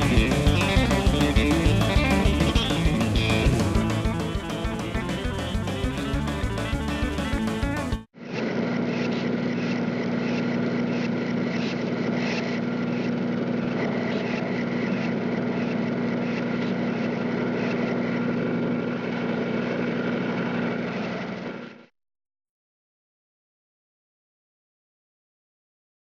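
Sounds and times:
engine humming steadily: 0:00.0 - 0:08.1.

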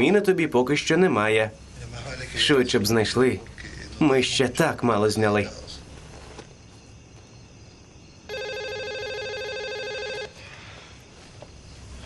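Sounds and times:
telephone ringing: 0:08.3 - 0:10.3.

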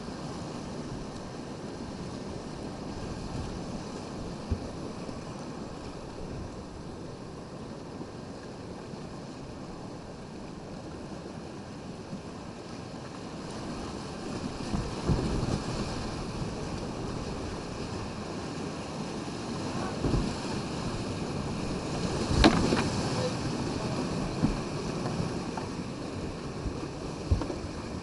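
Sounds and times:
boat and paddle knocks and splashes: 0:00.0 - 0:28.0
wind on microphone: 0:13.4 - 0:28.0
whitewater rushing: 0:15.6 - 0:28.0.

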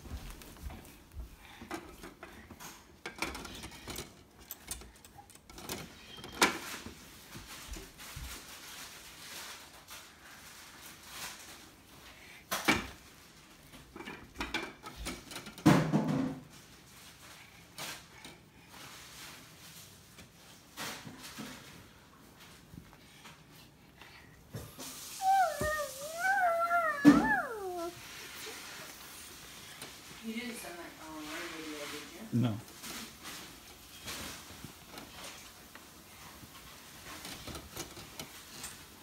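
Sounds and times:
window blinds clacking and rattling: 0:01.6 - 0:11.9, 0:12.5 - 0:22.0, 0:24.8 - 0:39.0.

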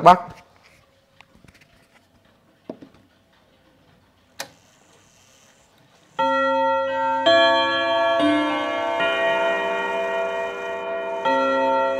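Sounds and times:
clock chime rods ringing: 0:04.6 - 0:11.9.

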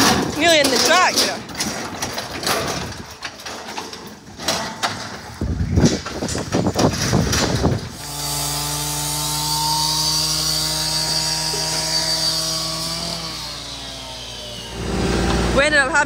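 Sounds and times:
excavator engine droning: 0:07.9 - 0:16.0.

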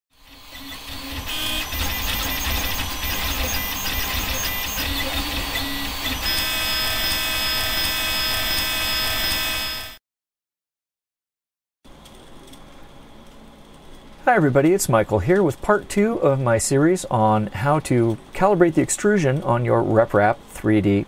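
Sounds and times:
stepper motors whining: 0:00.1 - 0:10.0.

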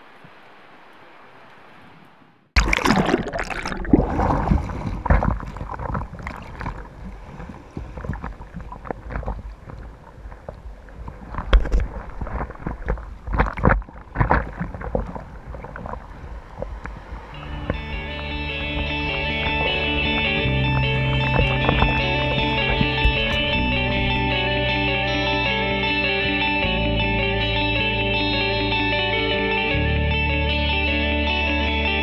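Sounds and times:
sea water splashing and gurgling: 0:00.0 - 0:24.4.

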